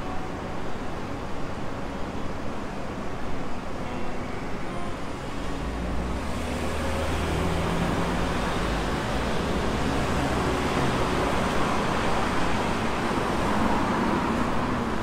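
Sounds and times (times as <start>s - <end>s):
cars passing: 4.7s - 15.0s
low engine hum: 5.1s - 15.0s.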